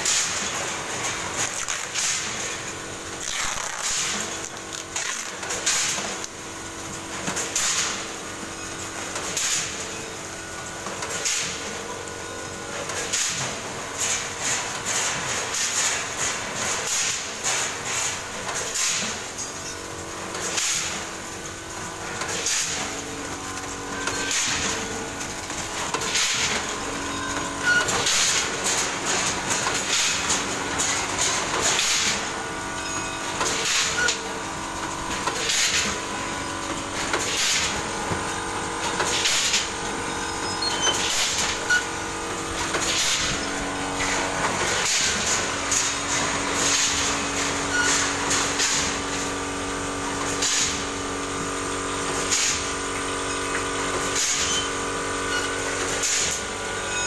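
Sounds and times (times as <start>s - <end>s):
machine hum: 17.5s - 57.0s.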